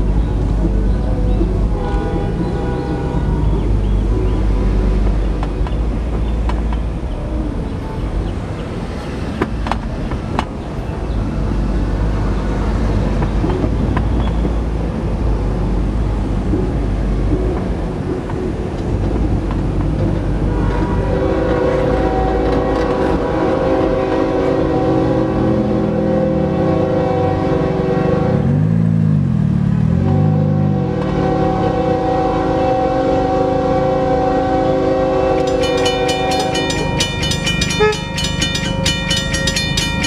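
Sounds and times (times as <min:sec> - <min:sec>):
locomotive rumble on rails: 0:00.0 - 0:40.0
locomotive air horn: 0:01.7 - 0:03.8, 0:20.5 - 0:28.7, 0:30.0 - 0:40.0.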